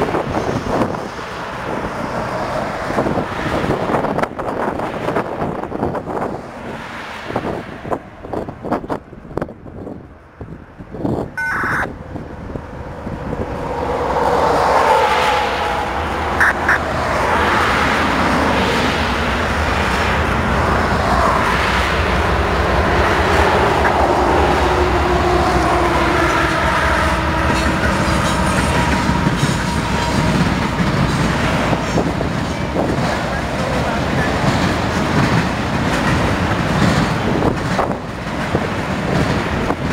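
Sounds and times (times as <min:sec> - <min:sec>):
train wheels on rails: 0:00.0 - 0:11.3, 0:12.1 - 0:39.9
diesel locomotive engines: 0:00.0 - 0:39.9
short high tones: 0:11.4 - 0:11.9.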